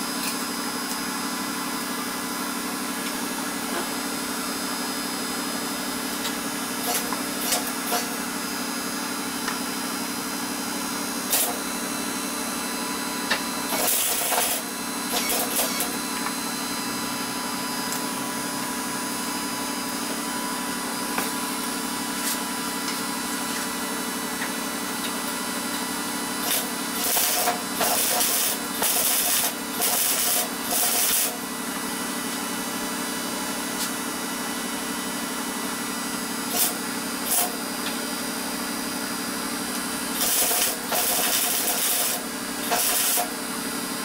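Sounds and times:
welding arc bursts: 13.7 - 16.0, 26.4 - 31.4, 36.5 - 37.6, 40.1 - 43.4.

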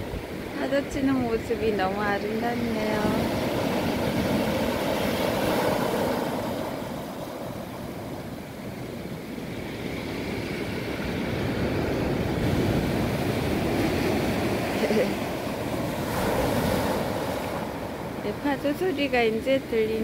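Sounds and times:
waves washing up pebble beach: 11.4 - 18.0.

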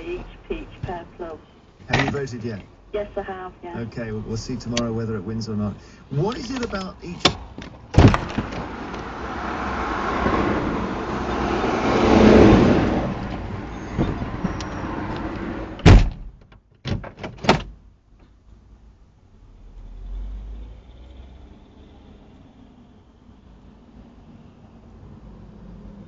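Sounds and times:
car noise: 0.0 - 26.0
car door slamming: 7.2 - 8.9, 15.8 - 17.8.

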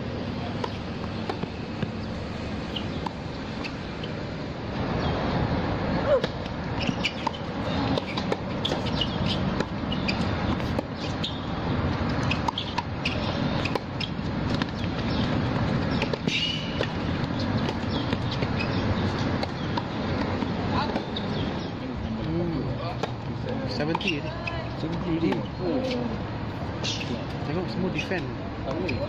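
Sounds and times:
tennis ball bouncing: 0.2 - 5.1, 5.9 - 21.7, 22.8 - 27.4
tennis racket hitting ball: 6.1 - 21.4.

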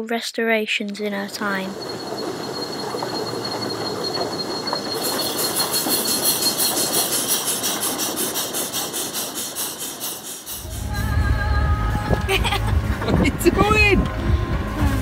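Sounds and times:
paddle wheels beating water: 1.3 - 10.6.

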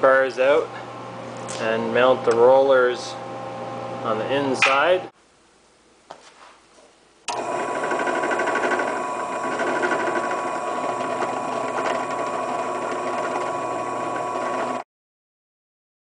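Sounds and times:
drill press drilling metal: 7.3 - 14.8.

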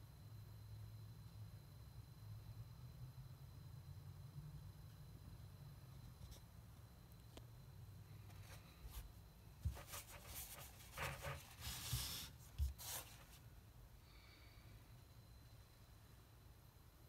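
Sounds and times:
cloth rustling: 8.3 - 13.4.

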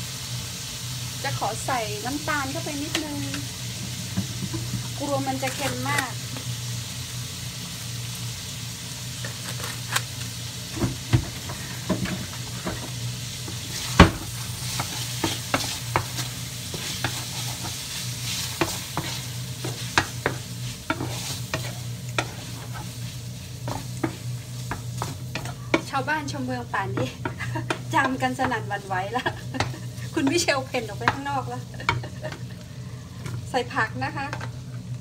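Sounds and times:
extractor fan humming: 0.0 - 35.0
seafood sizzling in a frying pan: 0.0 - 35.0
spatula scraping and tapping pan: 11.1 - 32.5, 34.2 - 34.6
spatula knocking on pan: 18.6 - 22.4, 26.8 - 32.4.

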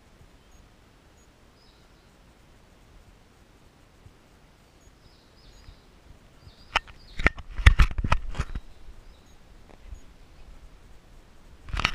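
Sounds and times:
faint bird chirps: 0.2 - 2.4, 4.6 - 7.4, 8.5 - 10.8.

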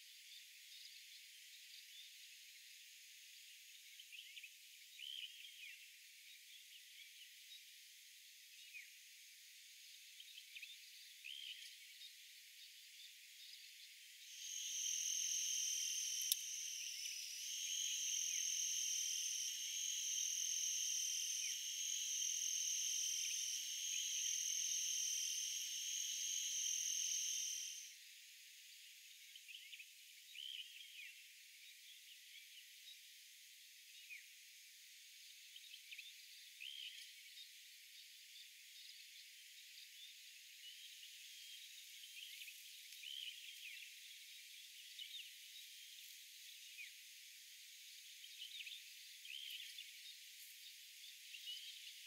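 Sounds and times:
high-pitched insect trill: 14.2 - 28.0.

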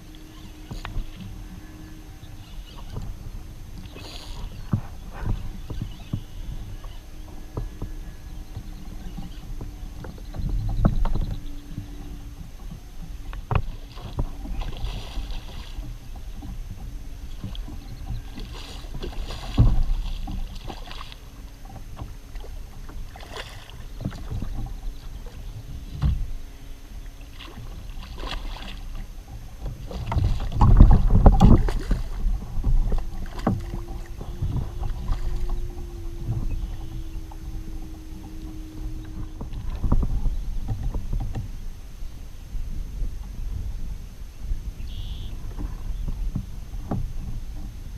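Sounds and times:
water: 0.0 - 47.9
wind: 0.0 - 47.9
splashes: 18.3 - 21.2, 22.4 - 24.5, 27.3 - 29.0, 29.8 - 37.5.

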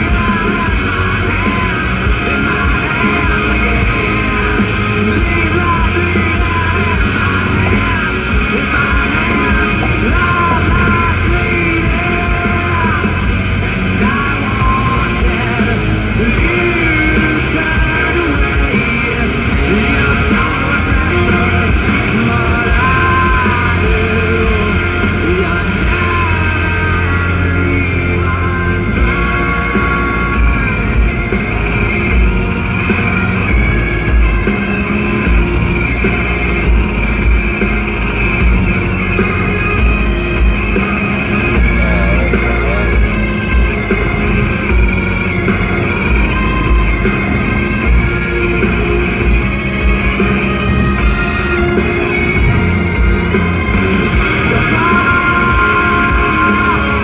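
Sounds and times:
loud rock music: 0.0 - 57.0
person shouting and singing: 40.6 - 49.3.

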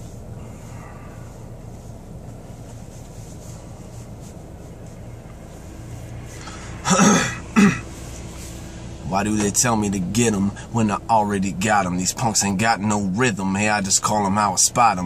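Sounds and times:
car engine hum: 0.0 - 15.0.

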